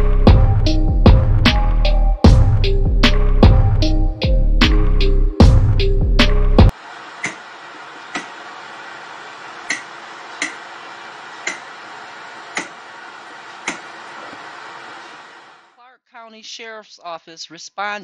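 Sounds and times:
tv static hiss: 6.7 - 15.8.

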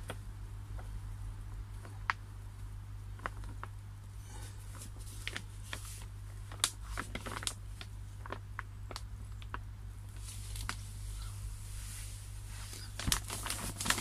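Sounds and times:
low hum: 0.0 - 14.0
plastic liner crinkling: 3.1 - 14.0.

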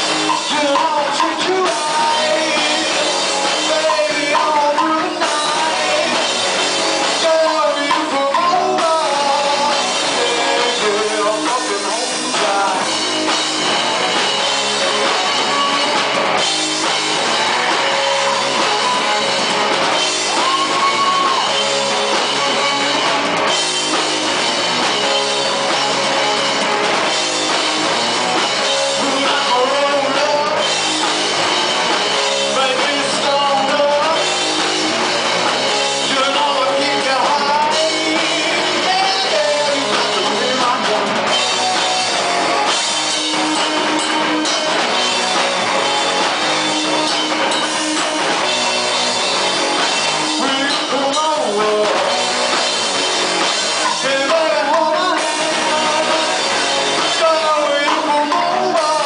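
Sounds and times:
drum kit: 0.0 - 59.0
electric guitar: 0.0 - 59.0
person singing: 0.2 - 13.1, 28.6 - 31.0, 32.2 - 34.6, 35.8 - 45.5, 50.1 - 52.6, 53.6 - 59.0.

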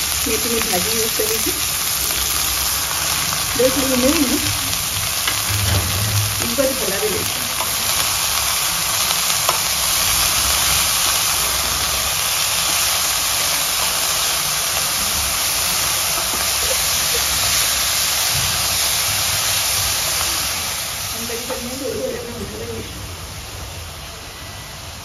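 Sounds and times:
leaves sizzling in hot oil: 0.0 - 25.0.

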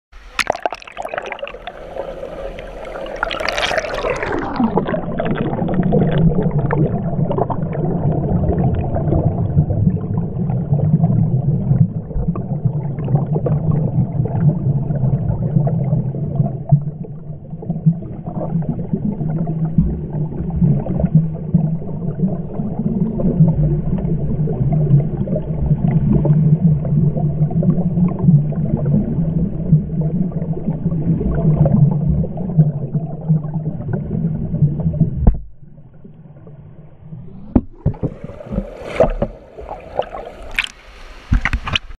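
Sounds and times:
water splashing: 0.2 - 26.5, 37.2 - 41.9
swimmer bubbling and splashing: 0.2 - 41.8
low underwater hum: 0.2 - 41.9.

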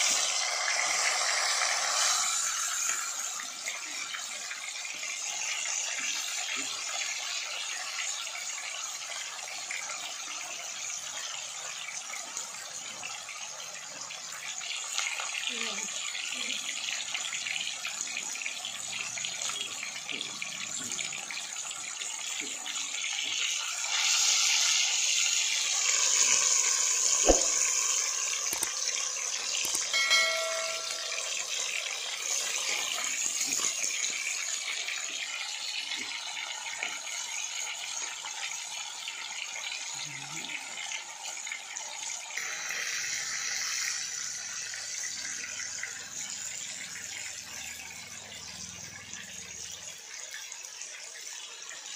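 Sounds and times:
fish sizzling in hot oil: 0.0 - 51.9
sharp knock: 27.2 - 27.6
brief chime: 29.9 - 31.8.

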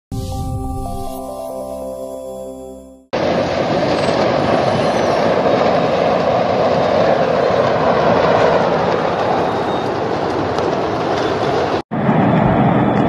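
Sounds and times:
roar of large fire: 3.2 - 13.0.

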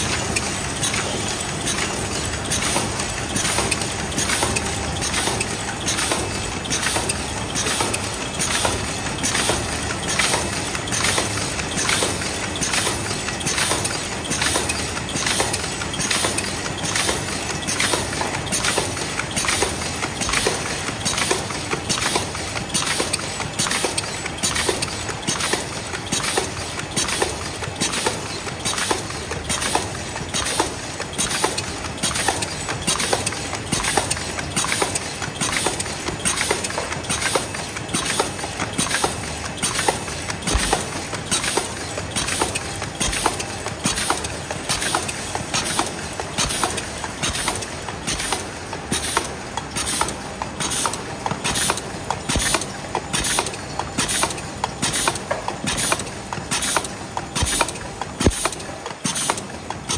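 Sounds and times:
machine clacking rhythmically: 0.0 - 59.9
steady machine noise: 27.3 - 51.3.

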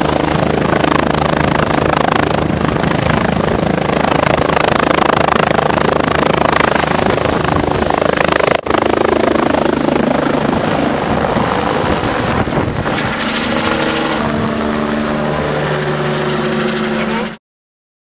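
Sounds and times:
helicopter rotor beat: 0.0 - 17.4
turbine whine: 0.0 - 17.4.

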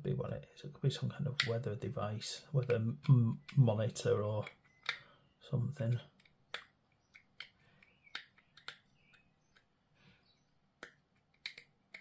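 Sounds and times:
plastic model parts clicking: 1.3 - 1.7, 2.6 - 5.0, 5.8 - 9.7, 10.8 - 12.0.

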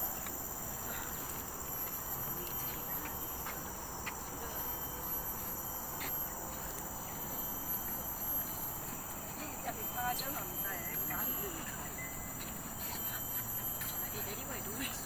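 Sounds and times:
insects chorus: 0.0 - 15.0.

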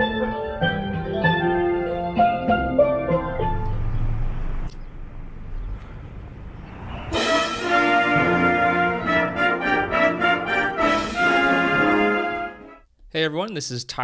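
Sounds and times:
concert band brass melody: 7.1 - 12.8.

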